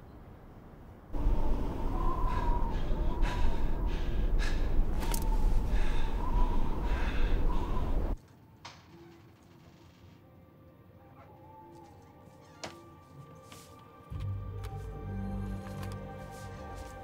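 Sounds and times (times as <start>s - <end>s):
blizzard wind rumbling and whistling: 0.1s - 8.2s.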